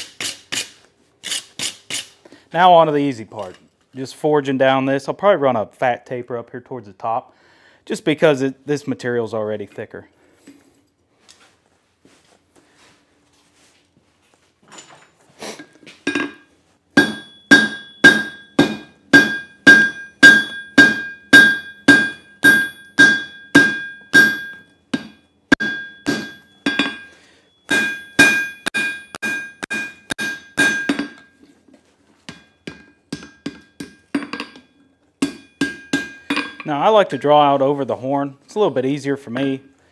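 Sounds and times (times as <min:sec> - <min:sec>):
anvil ringing: 0:16.1 - 0:31.4, 0:32.3 - 0:37.6
hammer striking steel on anvil: 0:16.1 - 0:31.4, 0:32.2 - 0:37.5.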